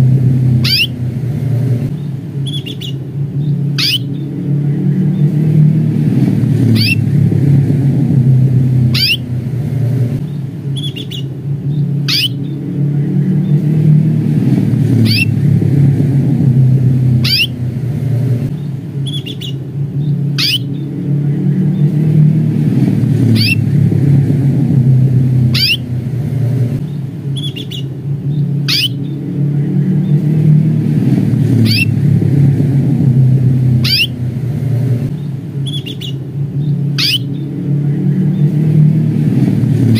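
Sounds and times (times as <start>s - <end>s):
low motor rumble: 0.0s - 39.9s
canary chirping: 0.6s - 1.0s, 2.0s - 4.3s, 6.6s - 7.1s, 8.8s - 9.4s, 10.2s - 12.6s, 15.0s - 15.4s, 17.2s - 17.7s, 18.6s - 20.9s, 23.3s - 23.7s, 25.4s - 26.0s, 26.8s - 29.2s, 31.6s - 32.0s, 33.8s - 34.2s, 35.2s - 37.5s.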